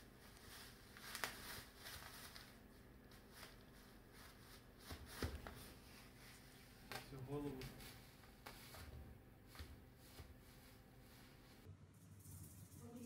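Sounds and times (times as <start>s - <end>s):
plastic bag crinkling: 0.3s - 4.8s.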